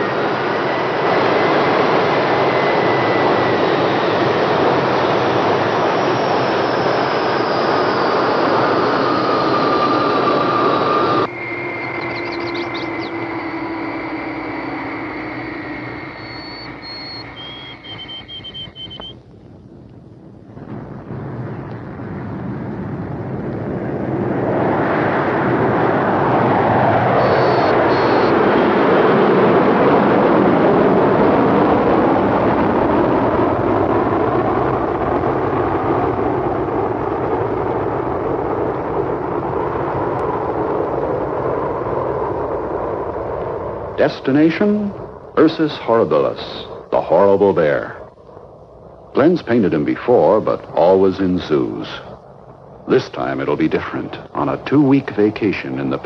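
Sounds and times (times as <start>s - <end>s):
jet engines whining: 0.0s - 19.4s, 20.4s - 56.0s
short high whistling tones: 11.3s - 19.2s.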